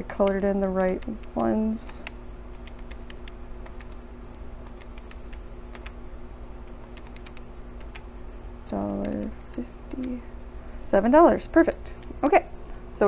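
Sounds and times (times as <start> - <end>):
calculator keys clicking: 0.2 - 4.0, 4.7 - 6.0, 7.0 - 8.0.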